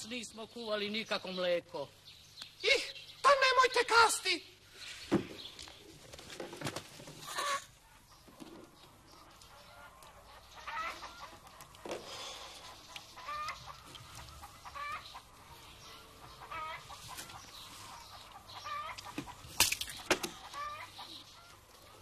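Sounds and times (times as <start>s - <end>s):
hens clucking: 6.3s - 22.0s.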